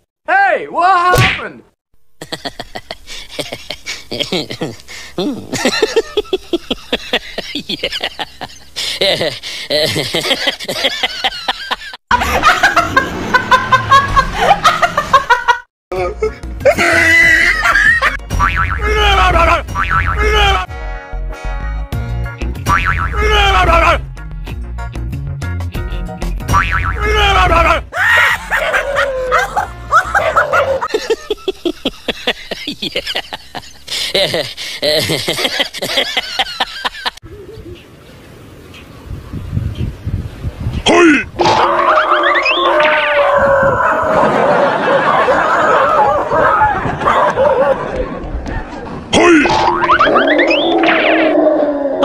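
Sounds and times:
women laughing hard: 0:02.2 - 0:15.7, 0:16.6 - 0:18.2, 0:18.8 - 0:19.6, 0:27.1 - 0:37.8, 0:43.6 - 0:49.0
music: 0:15.9 - 0:19.5, 0:20.5 - 0:27.8
dogs barking and yelping: 0:28.2 - 0:31.1, 0:43.2 - 0:48.8.

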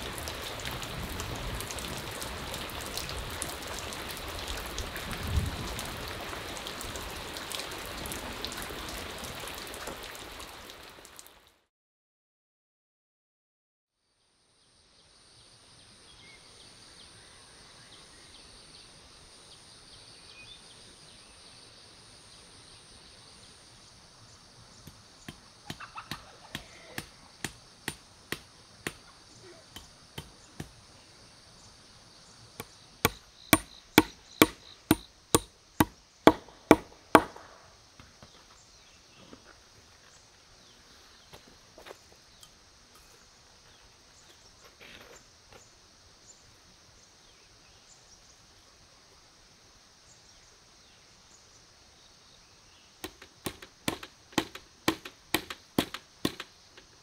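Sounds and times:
insects chirring: 0:14.0 - 0:57.0
hand tool striking wood: 0:24.8 - 0:29.0, 0:29.8 - 0:30.8, 0:32.6 - 0:37.5, 0:53.0 - 0:56.9.

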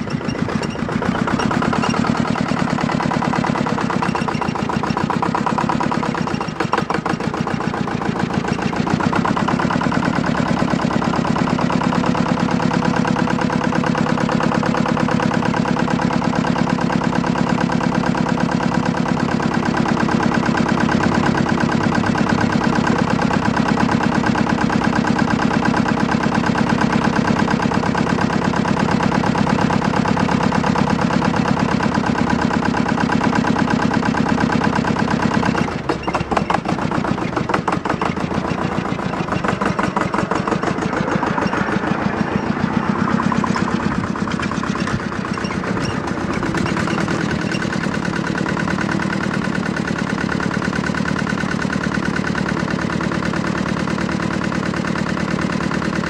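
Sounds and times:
tractor engine chugging: 0:00.0 - 0:56.0.

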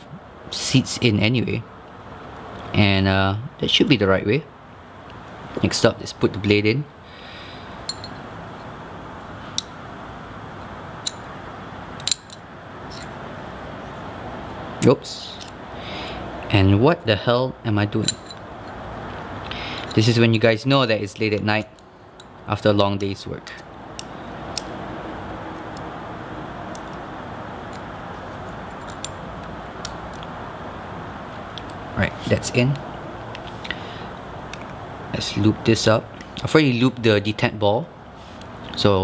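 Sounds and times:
steady low hiss: 0:00.0 - 0:39.0
small sharp metal clicks: 0:11.0 - 0:11.3, 0:12.0 - 0:13.2, 0:23.0 - 0:24.8, 0:28.5 - 0:30.3.

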